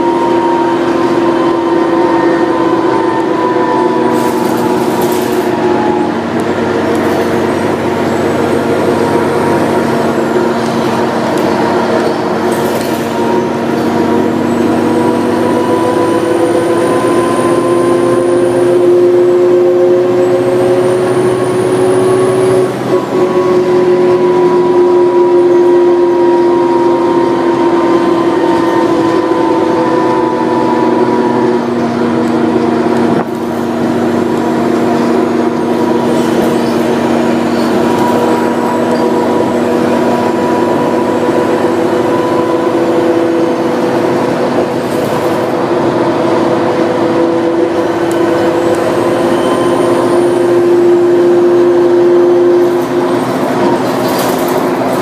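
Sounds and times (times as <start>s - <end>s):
bus engine and drivetrain whine: 0.0s - 55.0s
road noise: 0.0s - 55.0s.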